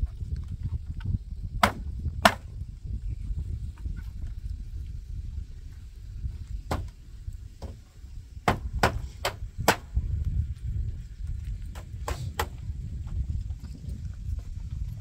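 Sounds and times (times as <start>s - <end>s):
wind rumble on microphone: 0.0s - 15.0s
hammer blows on wooden boards: 1.6s - 2.6s, 6.6s - 7.0s, 7.6s - 10.1s, 11.7s - 12.7s.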